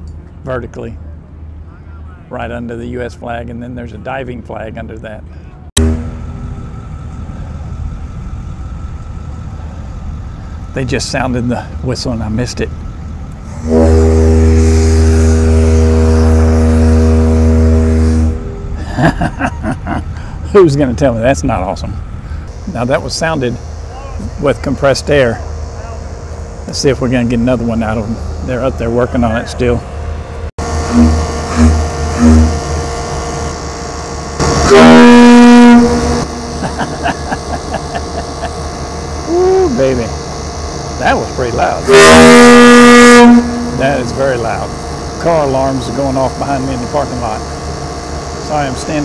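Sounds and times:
air conditioner hum: 0.0 - 49.0
ship whistle blast: 5.8 - 6.9, 13.4 - 18.8, 30.6 - 49.0.

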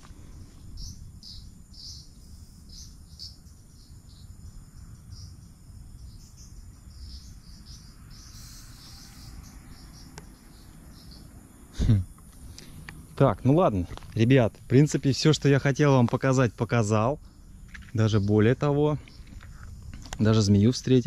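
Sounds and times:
crickets chirping: 0.0 - 21.0
high-pitched insect buzz: 0.5 - 13.2.

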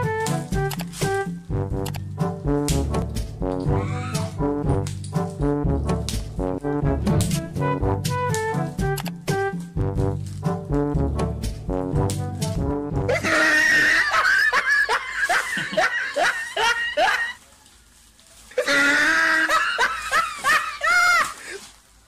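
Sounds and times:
brass intro music: 0.0 - 13.4
high-pitched laughing: 13.1 - 17.4, 18.6 - 21.6.

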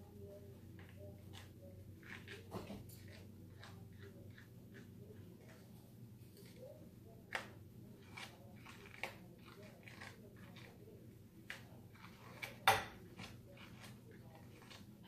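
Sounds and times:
grooming tool snips: 7.3 - 10.8.

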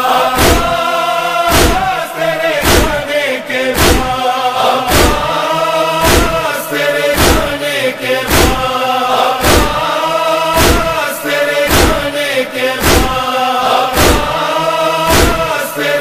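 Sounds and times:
chorus humming and chanting: 0.0 - 16.0
chest-beating thumps: 0.4 - 0.8, 1.5 - 2.0, 2.6 - 3.1, 3.7 - 4.2, 4.9 - 5.4, 6.0 - 6.4, 7.2 - 7.6, 8.3 - 8.7, 9.4 - 9.9, 10.6 - 11.0, 11.7 - 12.1, 12.8 - 13.2, 14.0 - 14.4, 15.1 - 15.5.

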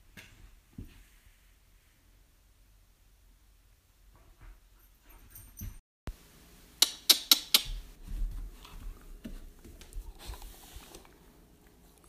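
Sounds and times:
puppy sharp sounds: 6.8 - 7.9.

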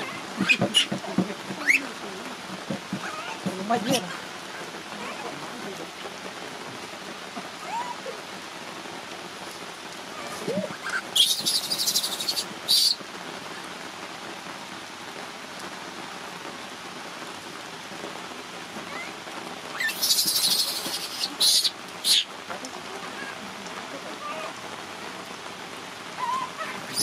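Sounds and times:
infant monkey screaming: 0.0 - 1.0, 1.6 - 1.9, 3.0 - 4.3, 7.6 - 8.2, 10.1 - 13.0, 18.8 - 22.3, 23.0 - 23.4, 24.2 - 24.6, 26.2 - 27.0
steady rain on wet ground: 0.0 - 27.0.

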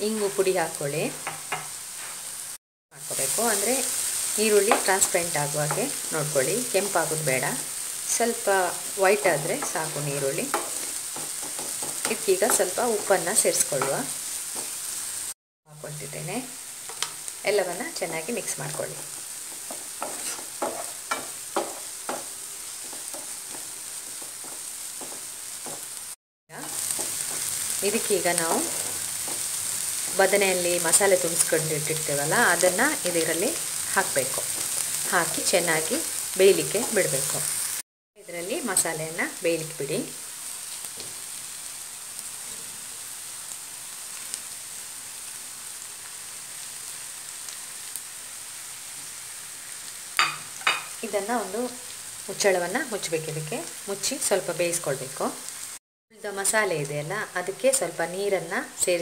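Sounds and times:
onions sizzling in a frying pan: 0.0 - 59.0
wooden spatula scraping a pan: 18.7 - 26.0, 26.6 - 30.2.

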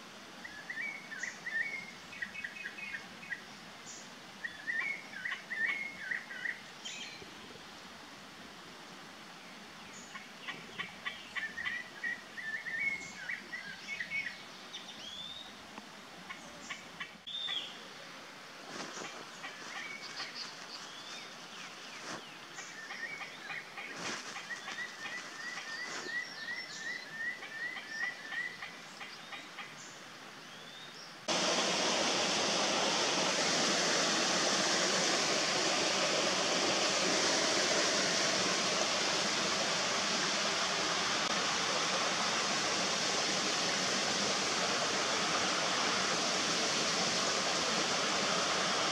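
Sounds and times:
birds chirping: 18.9 - 31.3
stream flowing over rocks: 31.3 - 48.9.

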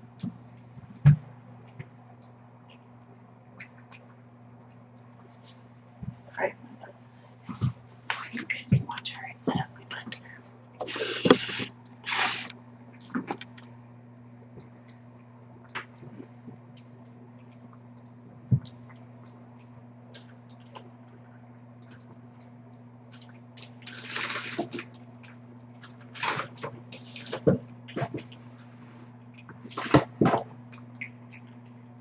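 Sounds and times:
low hum: 0.0 - 32.0
cat chewing and lapping food: 10.8 - 32.0.

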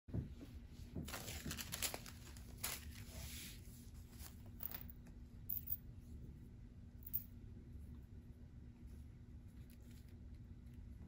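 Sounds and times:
paper crinkling and rustling: 1.0 - 4.6.

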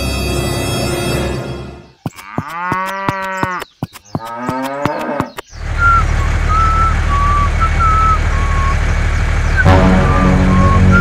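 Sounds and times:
sharp clicks: 2.0 - 6.7
cow mooing: 2.1 - 3.6, 4.2 - 5.3
low engine drone: 5.6 - 11.0.

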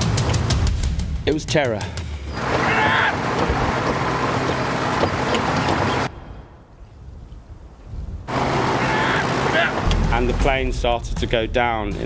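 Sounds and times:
light aircraft engine drone: 2.3 - 6.1
low rumble: 9.8 - 11.8.

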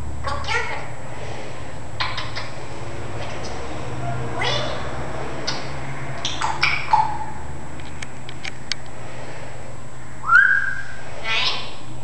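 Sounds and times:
parrot calls: 2.0 - 2.6, 3.4 - 7.4, 10.2 - 11.8
parrot whistle: 10.2 - 11.7.

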